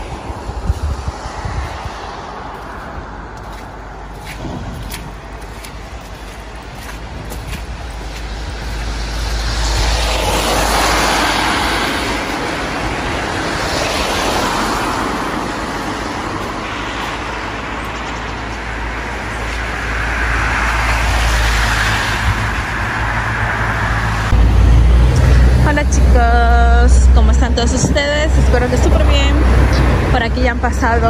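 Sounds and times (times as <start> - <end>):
low traffic rumble: 0.0 - 31.0
tyres hissing on wet road: 8.2 - 17.9.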